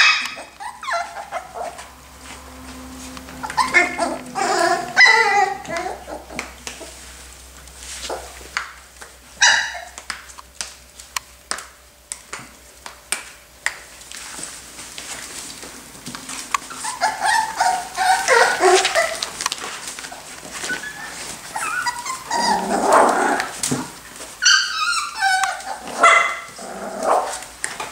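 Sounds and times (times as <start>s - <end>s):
puppies yipping and whining: 0.0s - 8.8s, 9.4s - 10.1s, 16.2s - 27.5s.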